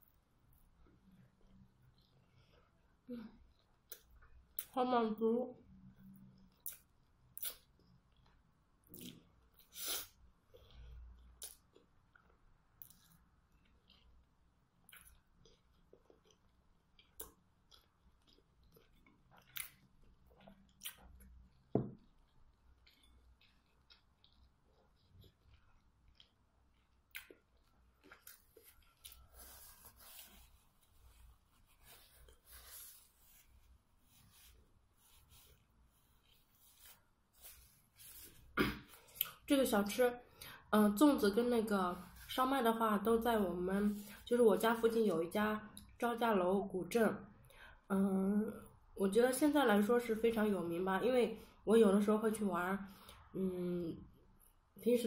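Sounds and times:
soft wet chewing sounds: 0.0s - 4.9s, 5.6s - 44.9s, 52.9s - 53.3s
paper tissue rustling: 28.6s - 38.6s.

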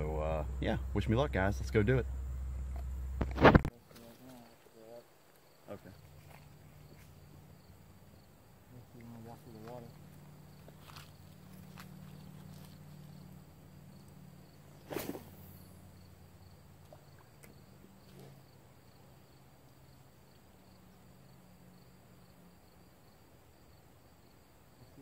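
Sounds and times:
insects chirping: 0.0s - 25.0s
steady low hum: 0.0s - 25.0s
short sharp noise: 1.9s - 3.8s.

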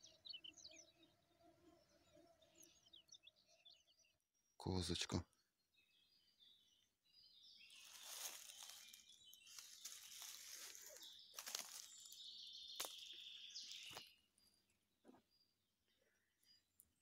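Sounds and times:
rustling in dry leaves: 7.7s - 13.1s.

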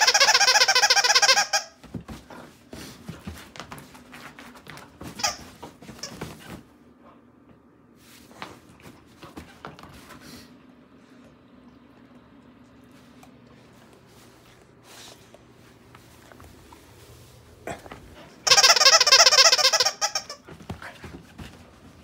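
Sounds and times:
dog squealing: 0.0s - 1.8s, 18.4s - 20.4s
paws scrabbling: 0.9s - 6.8s, 15.1s - 22.0s
bedding rustling: 1.8s - 6.9s, 13.0s - 22.0s.

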